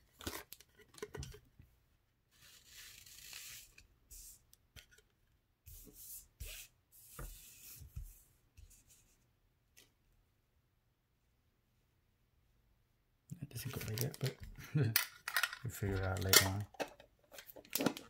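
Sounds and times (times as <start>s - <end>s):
cards rubbing and swishing: 2.3s - 4.4s.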